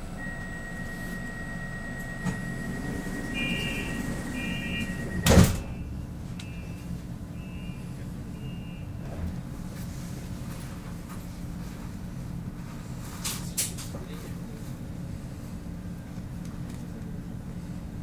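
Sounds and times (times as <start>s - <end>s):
steady electronic tone: 0.0s - 5.9s
train low hum: 0.0s - 18.0s
warning beeps: 0.1s - 6.8s
train doors thumping shut: 2.0s - 6.0s.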